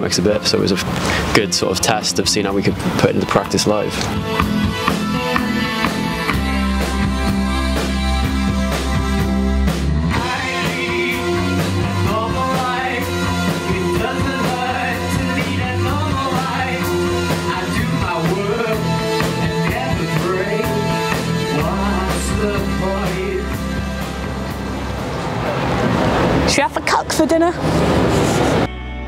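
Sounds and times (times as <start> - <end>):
rock band playing: 0.0 - 29.0
man singing lead: 10.1 - 24.1.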